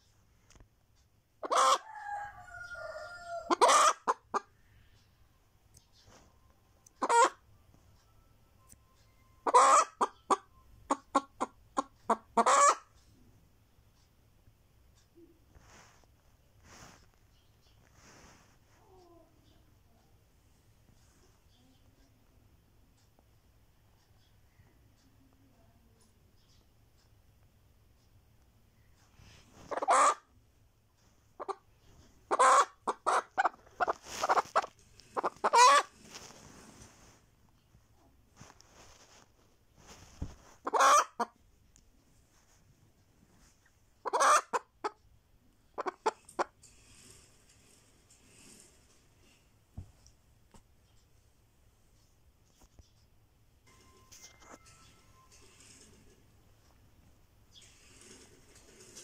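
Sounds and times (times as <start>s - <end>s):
hen cackling: 1.4s - 4.5s, 7.0s - 7.4s, 9.4s - 12.9s, 29.7s - 30.3s, 32.3s - 35.9s, 40.6s - 41.3s, 44.0s - 45.0s, 45.8s - 46.5s.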